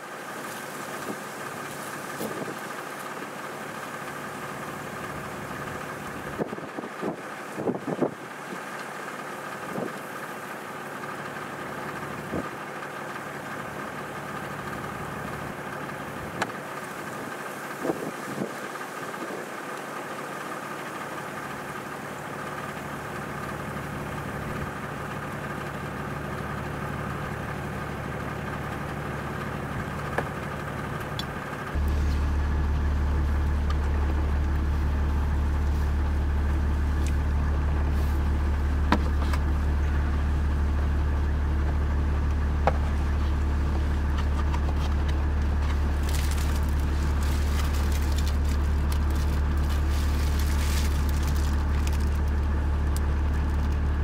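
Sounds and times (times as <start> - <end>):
engine idling: 0.0 - 54.0
plastic wrapper crinkling: 45.7 - 52.4.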